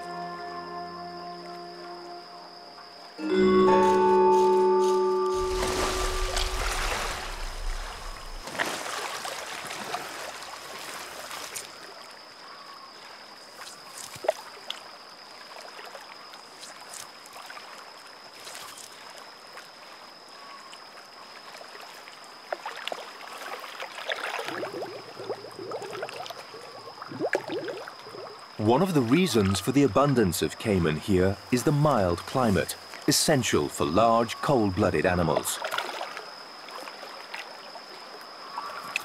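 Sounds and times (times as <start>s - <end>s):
thin steady high tone: 0.0s - 8.4s
water splashing and sloshing: 5.3s - 12.2s, 13.0s - 28.5s, 35.4s - 39.0s.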